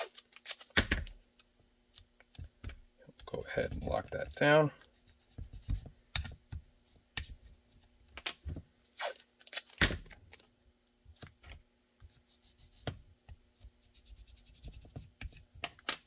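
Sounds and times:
tape handling scratches and clicks: 0.0 - 1.2, 9.0 - 10.4.

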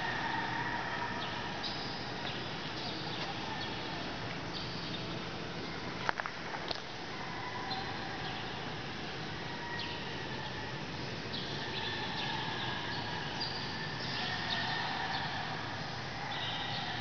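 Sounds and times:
faint high-pitched calls: 9.4 - 17.0.

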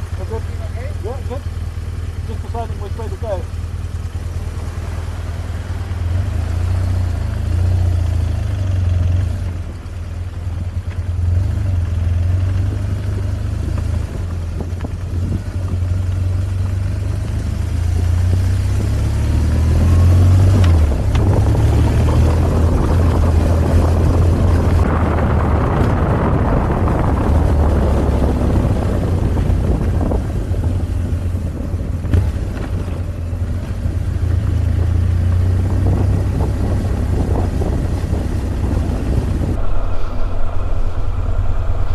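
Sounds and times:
motorcycle engine running: 0.0 - 41.9
rushing noise: 39.2 - 41.9.

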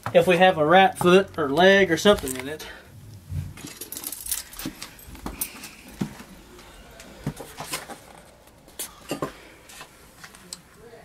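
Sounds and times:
metal trap and chain rattling: 3.6 - 5.8.

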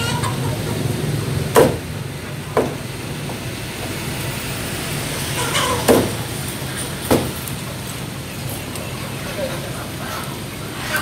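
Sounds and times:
cleaver chopping on wooden block: 1.6 - 1.8.

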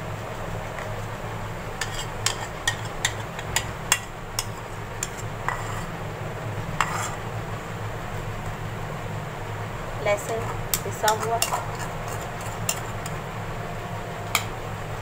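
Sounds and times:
metal spoon clinking on bowl: 10.7 - 13.2.

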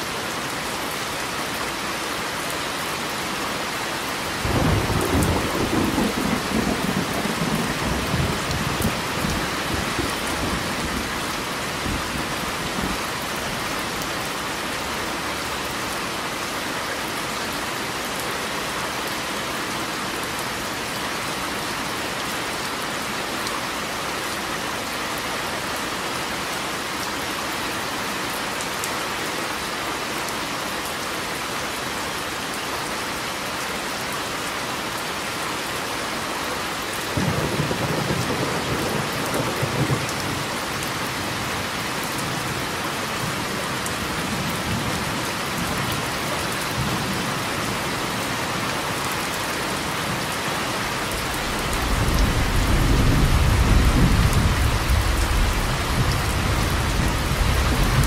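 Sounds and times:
steady rain falling: 0.0 - 58.0
thunder rumbling: 51.0 - 58.0.

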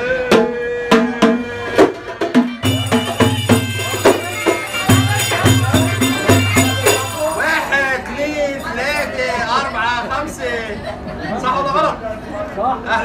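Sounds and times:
frame drums with jingles: 1.8 - 7.8
wavering melody: 2.6 - 8.0.

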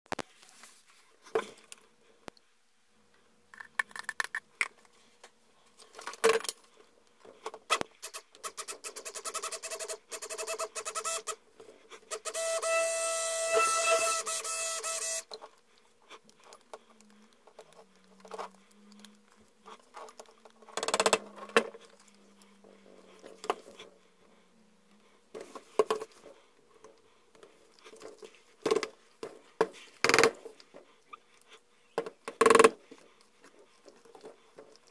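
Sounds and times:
stick blender running: 12.2 - 15.2.

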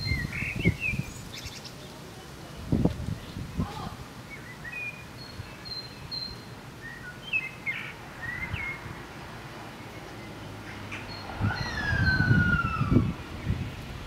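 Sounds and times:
birds chirping and whistling: 0.0 - 1.8, 4.3 - 8.9, 9.8 - 13.7.

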